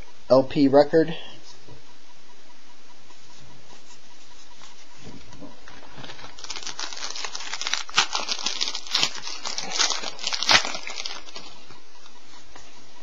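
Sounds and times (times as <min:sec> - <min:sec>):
wrapper crinkling: 0:05.7 - 0:11.7.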